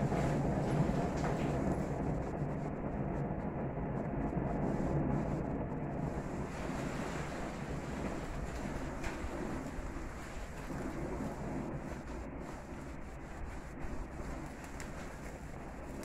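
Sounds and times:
gas grill flame rushing: 4.5 - 16.0.

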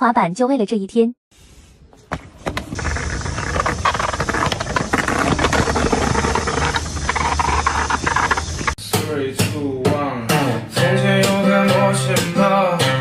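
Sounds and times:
skateboard wheels rolling on tiles: 1.9 - 8.8.

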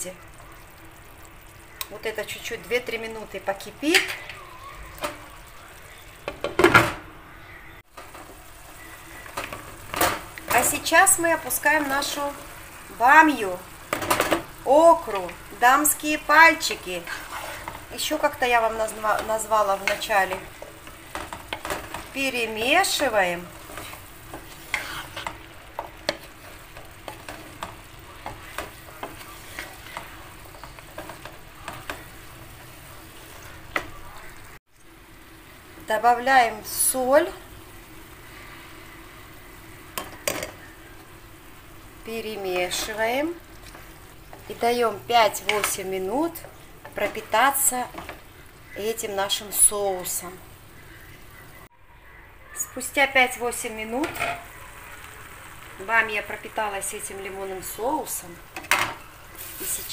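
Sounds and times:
sauce simmering in a pan: 0.0 - 6.5, 7.3 - 59.9
spatula knocking and scraping pan: 13.9 - 15.4, 16.6 - 32.8, 45.3 - 48.3, 54.0 - 54.4
utensil clattering against pan: 54.0 - 54.4.

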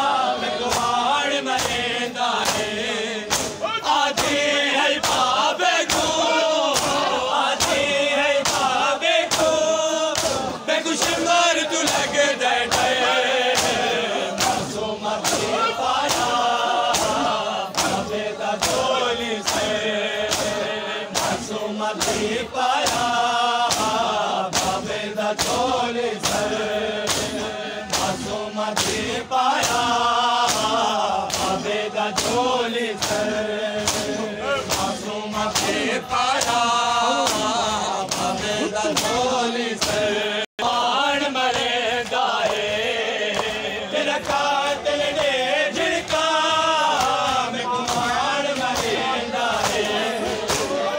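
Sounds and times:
men chanting in unison: 0.0 - 50.9
hands striking bare chests: 33.0 - 40.1.

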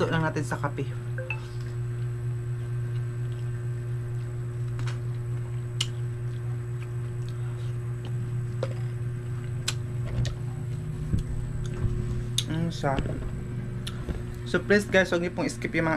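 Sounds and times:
steady low hum: 0.0 - 15.9
soft chewing: 1.6 - 12.5.

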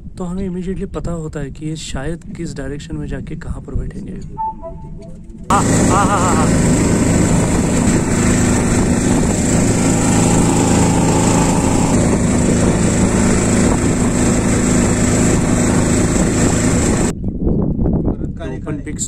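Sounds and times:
boat motor droning: 5.5 - 17.1.

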